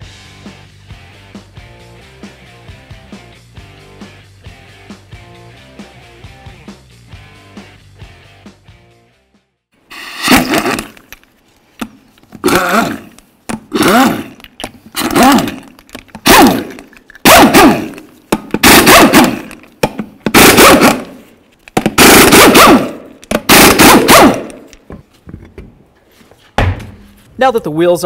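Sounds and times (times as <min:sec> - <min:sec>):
air impact wrench hammering: 0:10.1 - 0:11.0, 0:12.4 - 0:14.4, 0:15.0 - 0:24.8.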